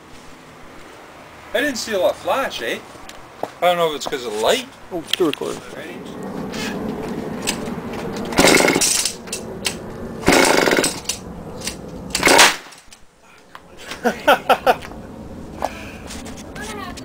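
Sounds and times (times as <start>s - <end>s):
small two-stroke engine surging: 8.3s - 9.5s, 10.1s - 11.2s, 12.1s - 12.6s.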